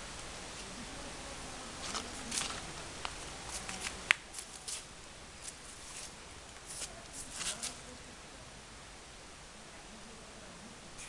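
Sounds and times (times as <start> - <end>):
footsteps on dry leaves: 1.8 - 7.8.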